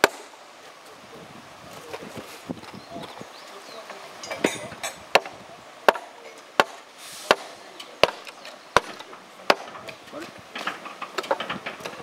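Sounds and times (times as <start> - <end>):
train wheels clacking over rail joints: 5.9 - 12.0.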